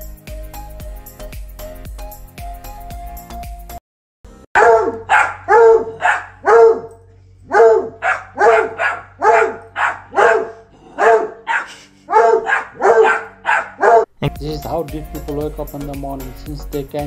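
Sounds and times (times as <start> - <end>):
dog barking: 4.6 - 14.1.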